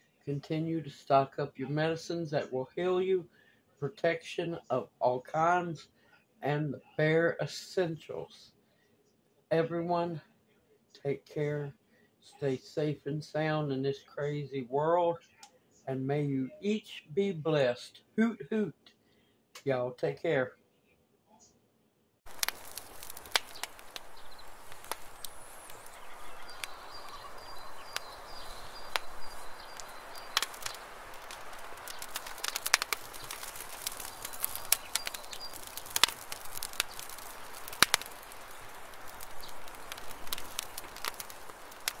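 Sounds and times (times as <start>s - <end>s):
wood fire crackling: 22.2s - 42.0s
faint high chirping: 23.4s - 42.0s.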